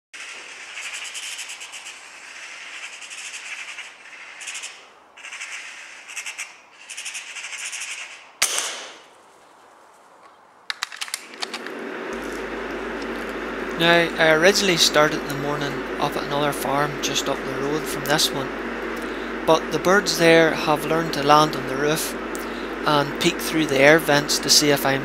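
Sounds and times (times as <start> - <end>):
magpie chattering: 0.2 - 8.4
loud gunshot with echo: 8.4 - 9.0.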